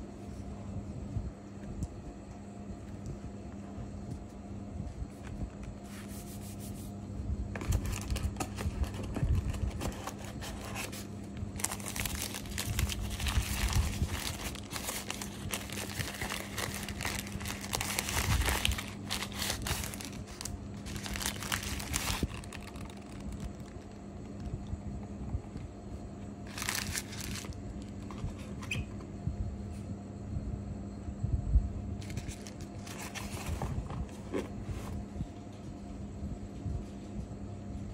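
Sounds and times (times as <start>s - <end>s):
wrapping paper crinkling: 7.6s - 24.5s, 26.4s - 28.2s, 32.0s - 33.8s.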